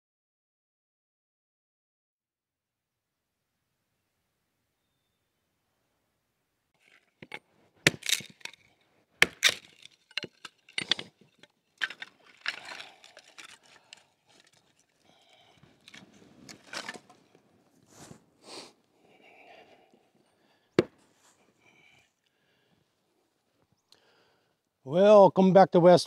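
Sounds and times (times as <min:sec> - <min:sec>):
wood scraping and rustling: 0:06.8 - 0:18.2.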